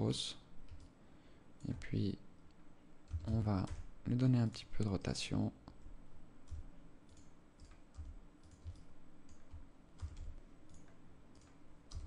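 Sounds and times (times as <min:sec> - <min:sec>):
keyboard and mouse clicks: 0:00.7 - 0:01.0, 0:03.1 - 0:03.9, 0:06.5 - 0:12.0.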